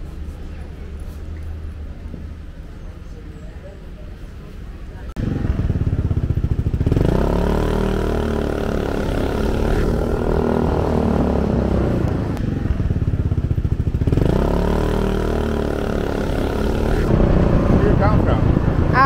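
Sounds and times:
small motorcycle engine running: 0:05.2 - 0:19.0.

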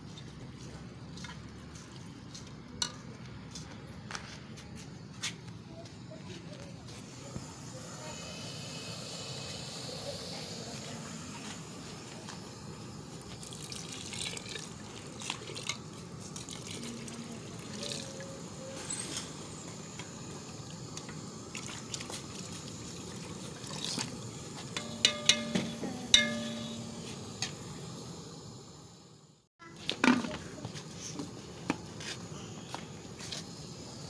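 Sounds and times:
water pouring into metal pot: 0:13.2 - 0:18.3, 0:21.5 - 0:25.5.

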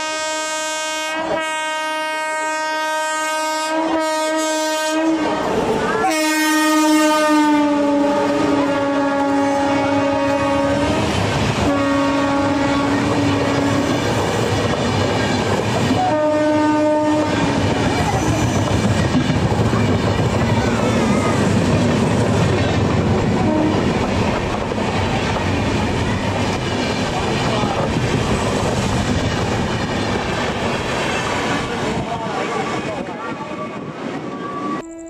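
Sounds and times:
train horn blasts: 0:00.0 - 0:14.2, 0:15.9 - 0:17.8, 0:23.4 - 0:23.9, 0:34.5 - 0:35.0
train coaches rumbling past: 0:00.0 - 0:35.0.

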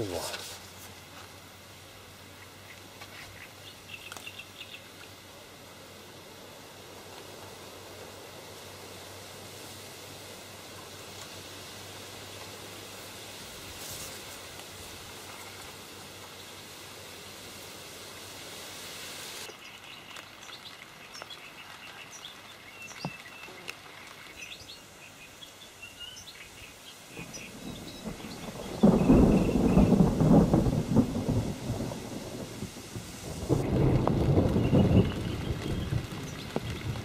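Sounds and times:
small birds chirping: 0:02.3 - 0:05.2, 0:19.4 - 0:30.6, 0:34.4 - 0:37.0
thunder rumbling: 0:27.1 - 0:37.0.

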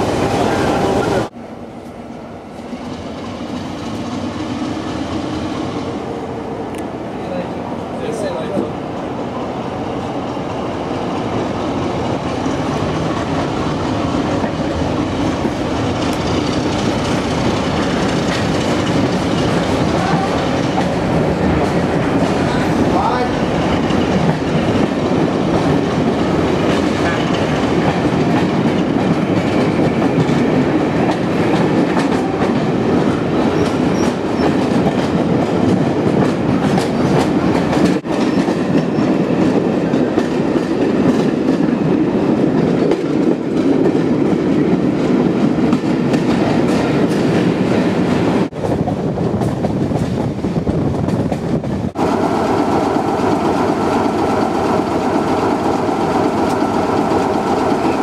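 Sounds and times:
train rumbling on track: 0:00.0 - 0:58.0.

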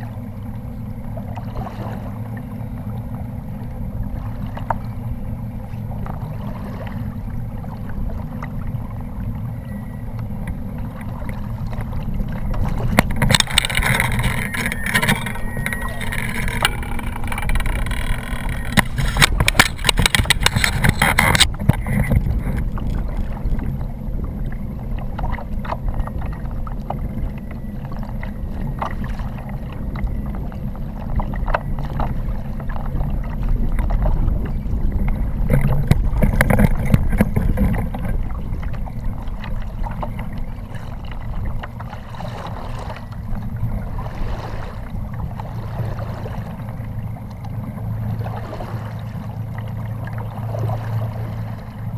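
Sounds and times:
water lapping against plastic hull: 0:00.0 - 0:51.9
wind rumble on microphone: 0:00.0 - 0:51.9
sharp knocks and rattles: 0:16.0 - 0:22.7.

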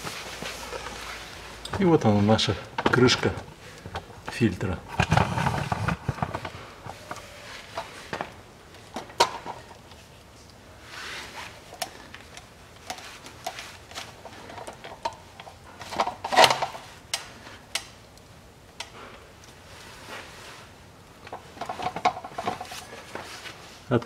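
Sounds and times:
soft rustle: 0:00.0 - 0:02.6, 0:05.0 - 0:08.9, 0:09.8 - 0:14.6, 0:19.4 - 0:24.0.

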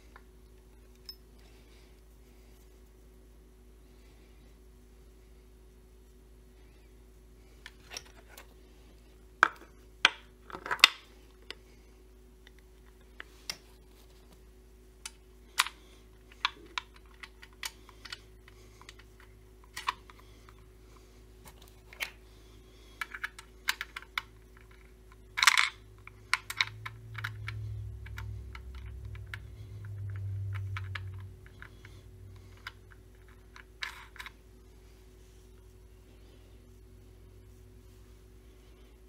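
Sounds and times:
low hum: 0:11.2 - 0:39.0.

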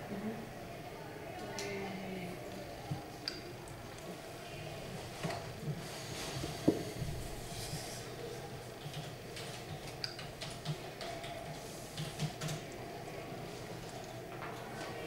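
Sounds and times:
low room hum: 0:00.0 - 0:10.5.

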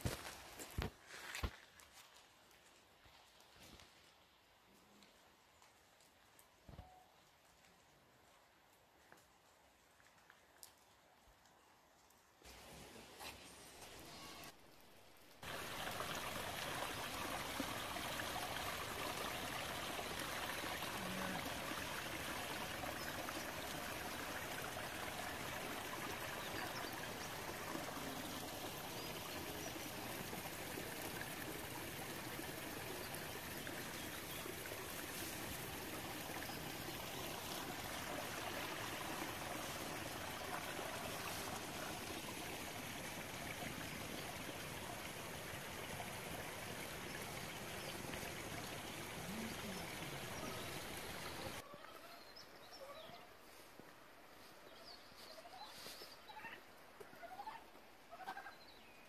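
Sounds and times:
stream flowing over rocks: 0:15.2 - 0:51.6.

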